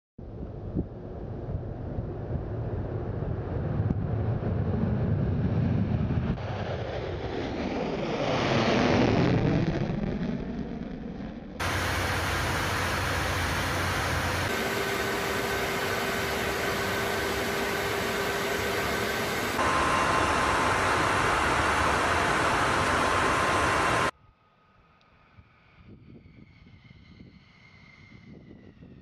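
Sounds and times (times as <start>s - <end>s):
aircraft engine and airflow noise: 0.2s - 29.0s
faint steady whine: 11.6s - 24.1s.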